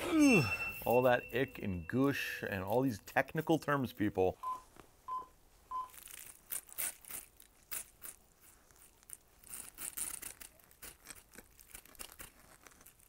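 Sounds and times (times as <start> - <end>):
short beeps: 0.0 - 2.5
knife crackling through pine cone: 5.9 - 13.0.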